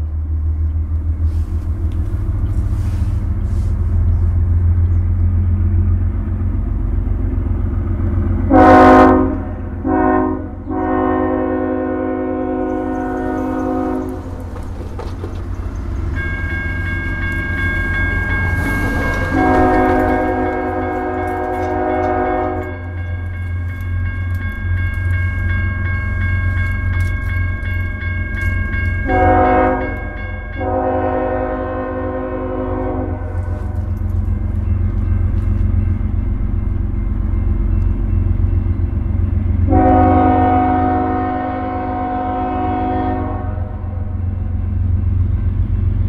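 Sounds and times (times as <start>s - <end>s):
low rumble of diesel engines: 0.0s - 46.0s
crossing warning bell ringing: 7.2s - 46.0s
train air horn blasts: 8.5s - 14.3s, 18.4s - 22.9s, 29.0s - 33.9s, 39.6s - 44.1s.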